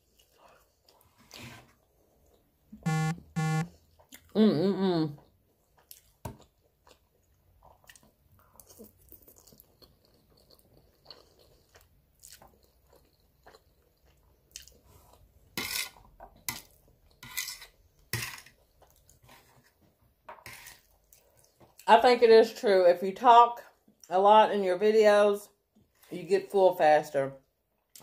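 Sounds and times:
chewing and slurping noodles: 5.2s - 19.8s.

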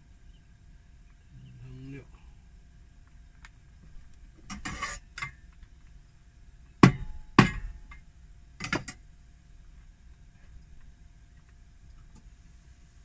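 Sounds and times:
cleaver striking wooden cutting board: 6.8s - 7.7s.

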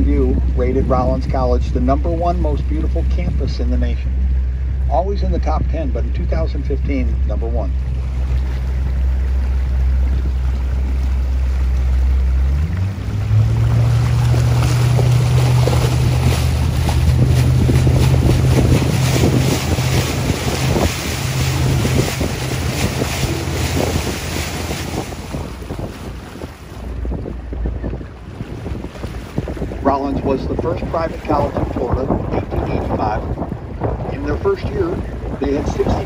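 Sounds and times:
boat motor humming: 0.0s - 36.0s
water noise: 0.0s - 36.0s
wind buffeting microphone: 0.0s - 36.0s.

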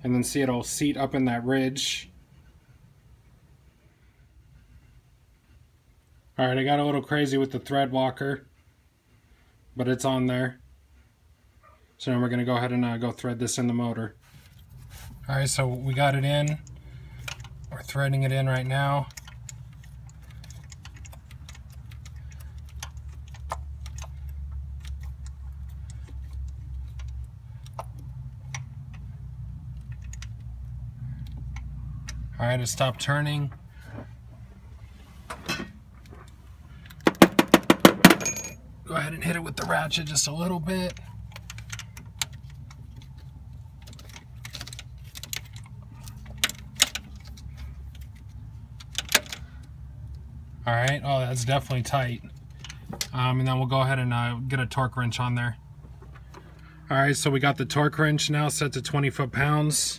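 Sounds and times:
steady low hum: 12.8s - 59.9s.

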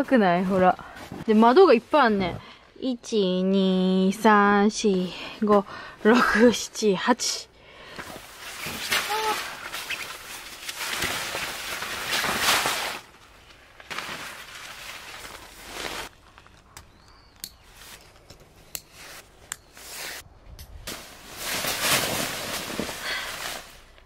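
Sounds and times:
fabric rustling and flapping: 8.0s - 16.1s, 20.9s - 24.0s.

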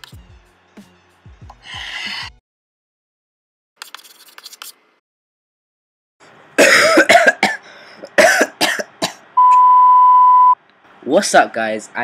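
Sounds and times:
person coughing and clearing throat: 6.6s - 9.2s.

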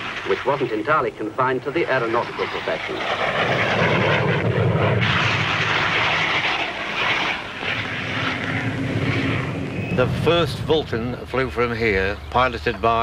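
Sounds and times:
jet engine roar: 0.0s - 13.0s.

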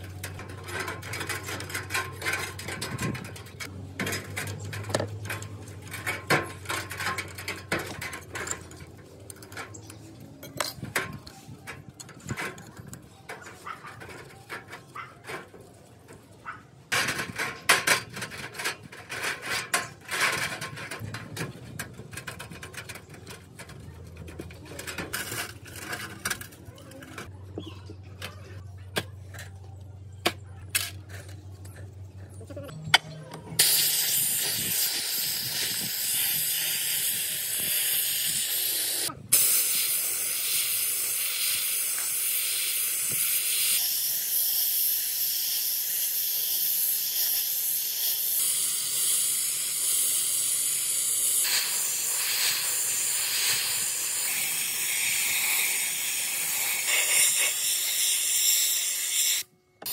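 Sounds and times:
metal parts clicking in tray: 0.0s - 15.5s
sandblasting gun hissing: 33.6s - 59.9s.

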